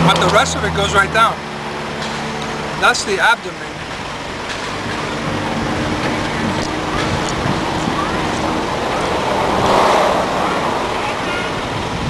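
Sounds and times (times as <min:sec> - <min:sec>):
loud rush of noise: 0:00.0 - 0:12.0
road traffic: 0:00.0 - 0:12.0
wind: 0:00.0 - 0:12.0
wind buffeting microphone: 0:03.7 - 0:12.0.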